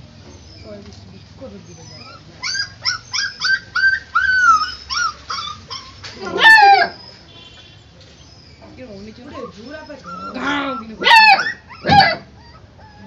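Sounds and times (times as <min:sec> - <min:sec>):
puppy whimpering: 0:01.6 - 0:07.2, 0:09.3 - 0:13.0.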